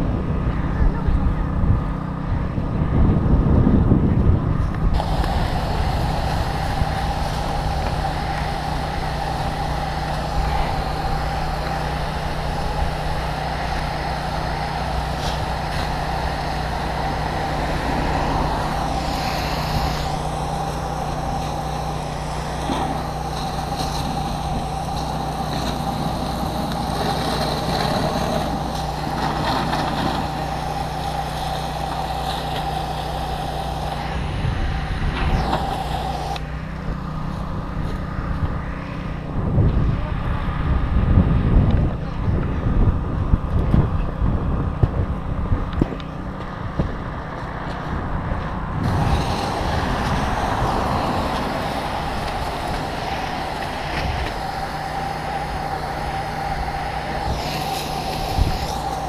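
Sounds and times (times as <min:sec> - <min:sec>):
fire engine pump droning: 0:00.0 - 0:59.0
hose nozzle spraying water: 0:04.9 - 0:36.5, 0:48.8 - 0:59.0
steady high tone: 0:05.0 - 0:27.1.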